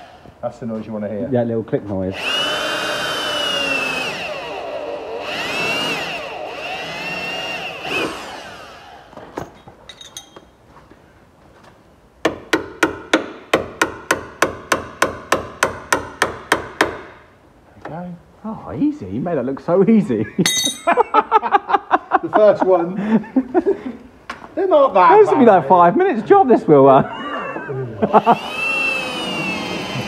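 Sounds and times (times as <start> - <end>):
cordless drill whining into steel: 2.2 - 9.2, 28.2 - 30.0
hammer striking chisel: 12.2 - 17.2, 20.5 - 21.0.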